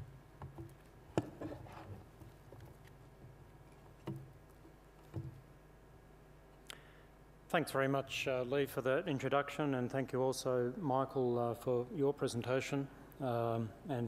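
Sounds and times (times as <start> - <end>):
room hum: 0.0 - 14.0
soft knocks: 5.1 - 5.4.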